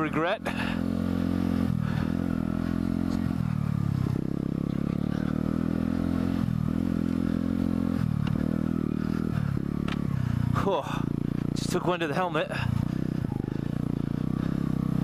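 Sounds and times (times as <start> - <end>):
motorcycle engine running: 0.0 - 15.0
bike clicks and rattles: 8.2 - 10.4.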